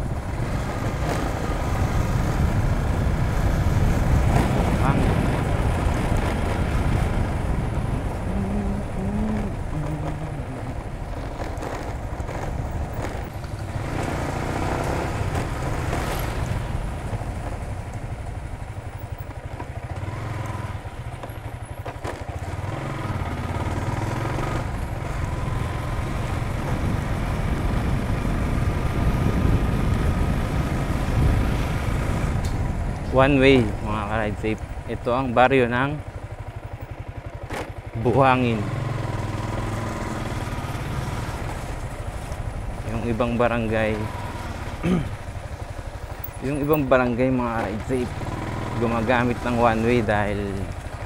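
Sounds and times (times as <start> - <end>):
wind noise on microphone: 0.0 - 17.4, 24.5 - 34.4
motor scooter engine running: 0.0 - 51.0.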